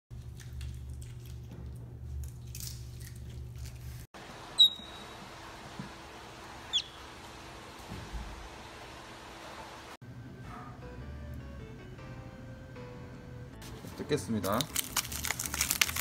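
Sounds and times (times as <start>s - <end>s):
high-pitched chirps: 4.6s - 5.2s, 6.7s - 7.0s.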